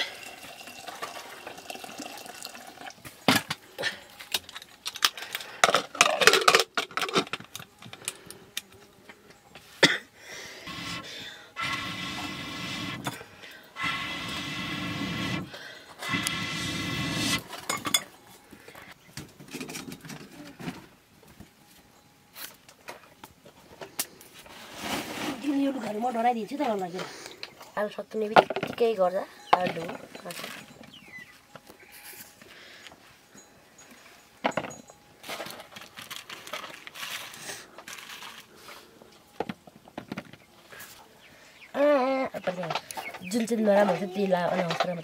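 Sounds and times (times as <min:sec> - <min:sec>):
breath blown through blowpipe: 0:10.5 - 0:13.2, 0:13.8 - 0:17.5
rustling of sacking: 0:24.4 - 0:26.4, 0:35.2 - 0:39.0.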